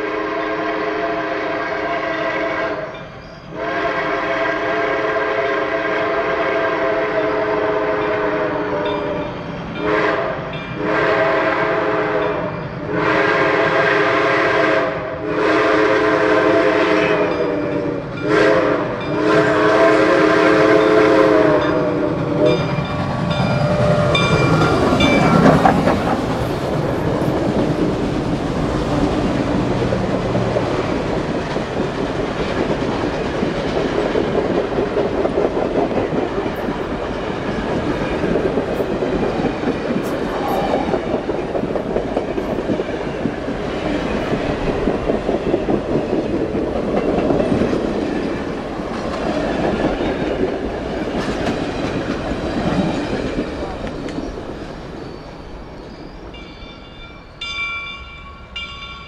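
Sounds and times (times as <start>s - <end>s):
steam locomotive chime whistle: 0.0s - 25.7s, 40.0s - 41.6s, 53.3s - 59.0s
steam locomotive passing: 0.0s - 59.0s
train cars clickety-clack on rails: 0.0s - 59.0s.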